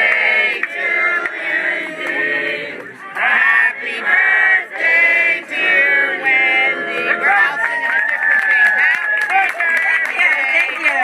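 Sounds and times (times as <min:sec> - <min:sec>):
group singing in unison: 0:00.0 - 0:07.5.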